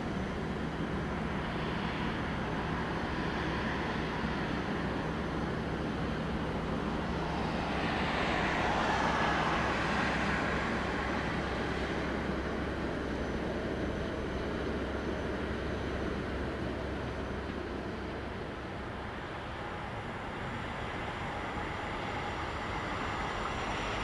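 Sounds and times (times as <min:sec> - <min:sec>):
car passing on road: 0:07.2 - 0:12.0.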